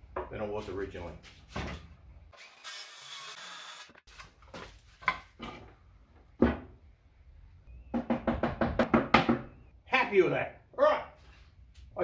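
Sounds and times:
circular saw cutting wood: 0:02.4 - 0:04.0
wooden knocks and thunks: 0:05.0 - 0:06.8, 0:07.9 - 0:09.6.

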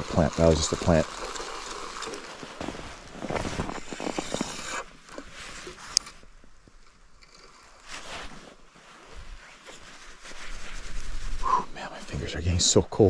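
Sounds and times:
fishing reel click: 0:00.3 - 0:02.3
jacket and gloves rustling: 0:01.1 - 0:11.6.

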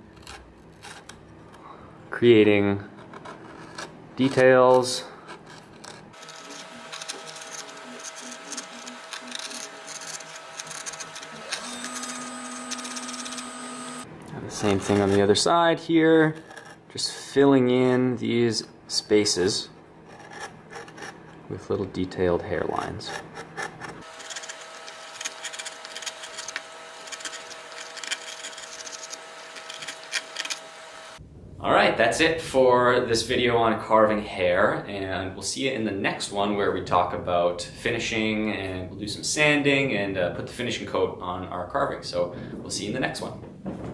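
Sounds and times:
gouge scraping through wood: 0:00.0 - 0:01.6, 0:02.9 - 0:18.1, 0:19.7 - 0:21.5, 0:22.5 - 0:31.2.

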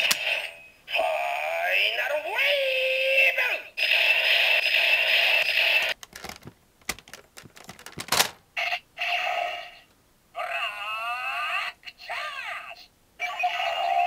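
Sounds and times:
toy electronic sound effect: 0:13.2 - 0:14.0.

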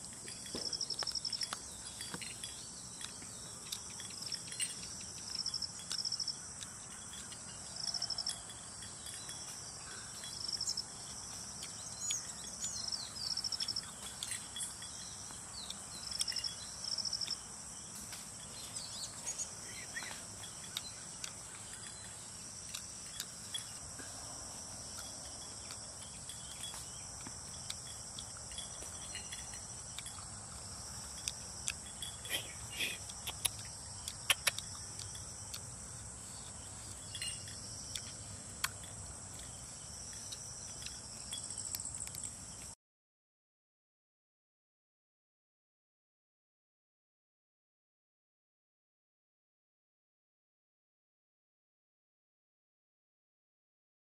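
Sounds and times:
high insect drone: 0:00.0 - 0:42.8
insects chirping in pulsed trills: 0:00.0 - 0:42.8.

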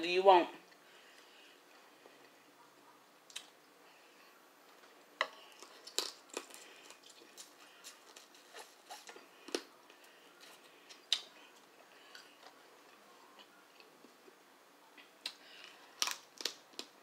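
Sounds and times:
crab shells cracking: 0:05.6 - 0:07.1, 0:15.3 - 0:17.0.

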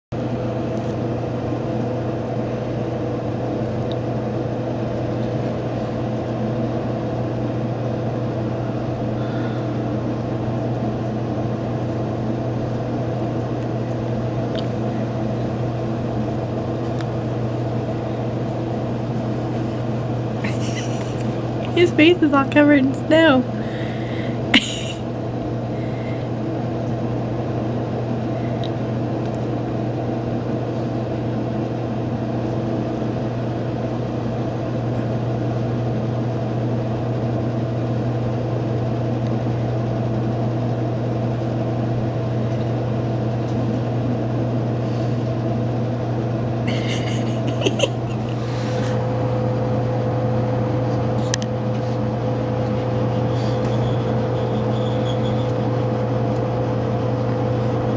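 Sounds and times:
low machine hum: 0:00.1 - 0:57.9.

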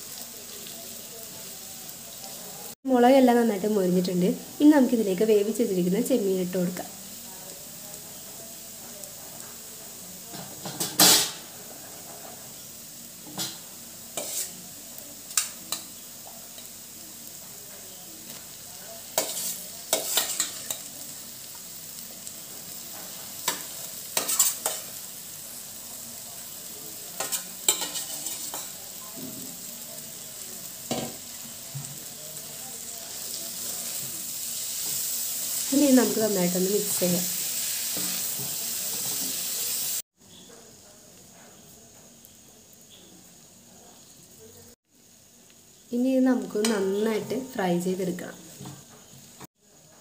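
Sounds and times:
faint frying sizzle: 0:00.0 - 0:50.0
steel spoon scraping a pan: 0:13.4 - 0:14.7, 0:19.0 - 0:21.0, 0:22.9 - 0:25.0, 0:27.2 - 0:28.8.

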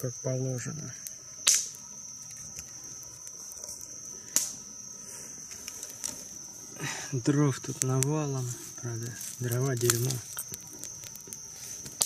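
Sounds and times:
crickets chirping: 0:00.0 - 0:12.0
sharp snap: 0:01.4 - 0:01.8, 0:04.3 - 0:04.6.

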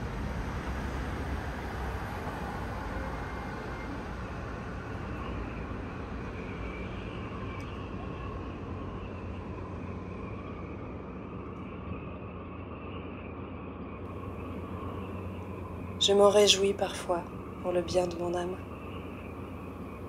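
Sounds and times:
low hum: 0:00.0 - 0:20.0
steady rumbling: 0:14.1 - 0:20.0.

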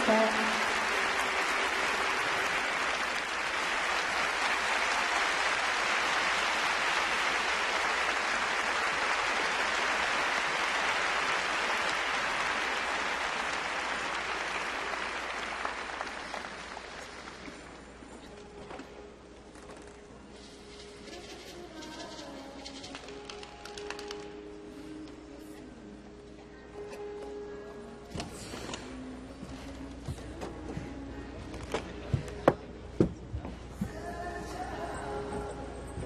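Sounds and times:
large crowd applauding: 0:00.0 - 0:18.1.

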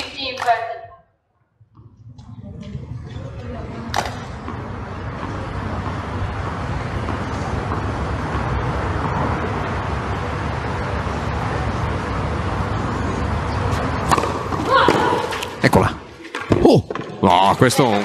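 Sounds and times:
low rumble with hiss: 0:01.5 - 0:14.8.

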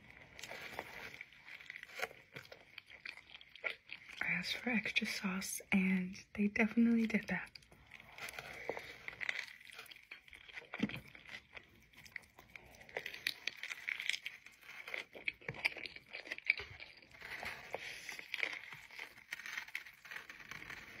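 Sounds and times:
biting into a burger: 0:00.0 - 0:04.2, 0:07.6 - 0:21.0
wet chewing: 0:00.0 - 0:05.2, 0:06.8 - 0:21.0
paper wrapper crinkling: 0:13.1 - 0:21.0.

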